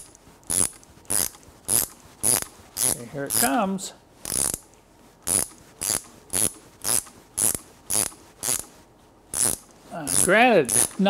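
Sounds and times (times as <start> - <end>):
ratchet wrench clicking: 0.5 - 3.4, 4.3 - 4.7, 5.3 - 8.7, 9.3 - 11.0.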